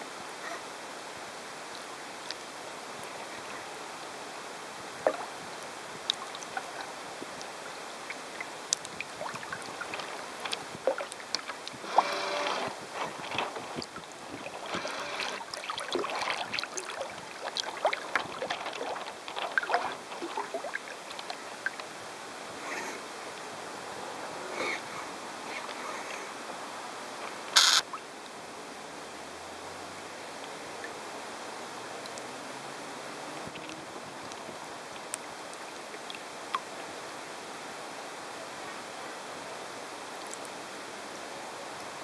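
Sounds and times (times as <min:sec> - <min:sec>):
water rushing along a hull: 0:00.0 - 0:42.0
wind on microphone: 0:11.6 - 0:15.3.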